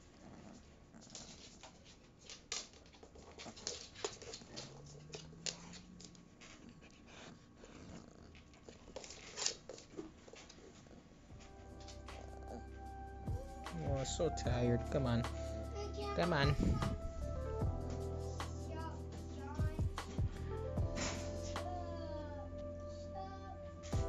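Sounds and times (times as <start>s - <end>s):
puppy whining: 11.7s - 13.7s.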